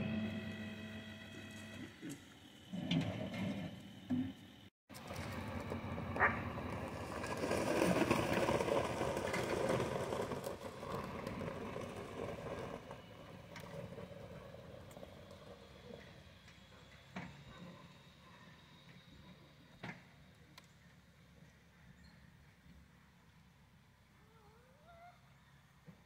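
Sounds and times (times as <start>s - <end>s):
pickup truck engine under load: 0.0s - 2.0s, 4.9s - 20.3s.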